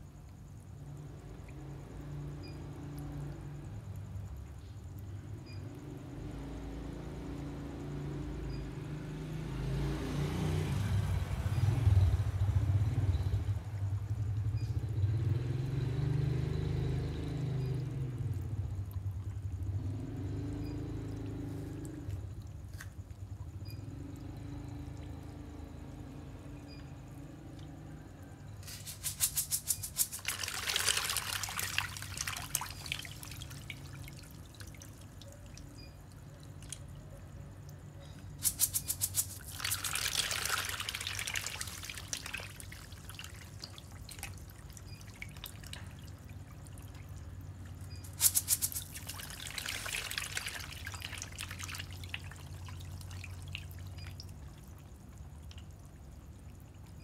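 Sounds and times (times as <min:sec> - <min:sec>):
fish splashing and thrashing: 0:28.6 - 0:36.9, 0:38.3 - 0:55.7.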